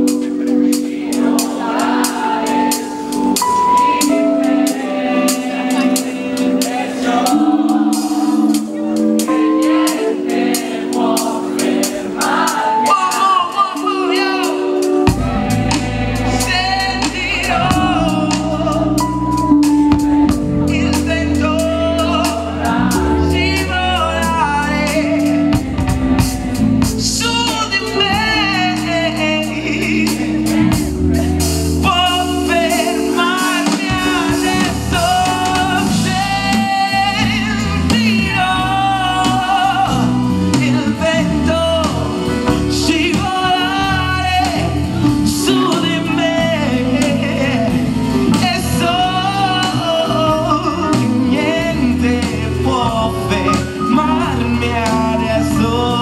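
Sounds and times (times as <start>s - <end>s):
man singing into microphone: 10.9s - 25.7s, 26.6s - 56.0s
bass and drums: 14.8s - 56.0s.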